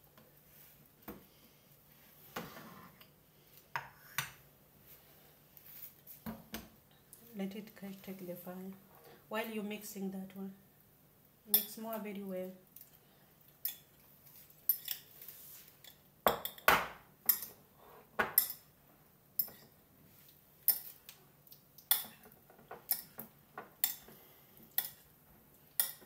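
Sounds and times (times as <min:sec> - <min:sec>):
food stirred in ceramic bowl: 0:12.7 - 0:16.6, 0:19.4 - 0:26.0.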